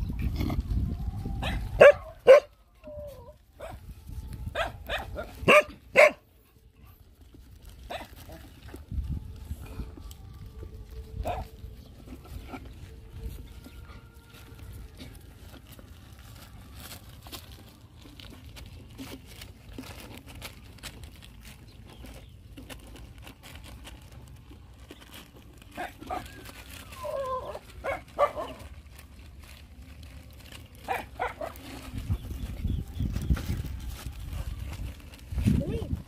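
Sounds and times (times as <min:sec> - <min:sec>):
dog whining: 0:25.8 - 0:28.6.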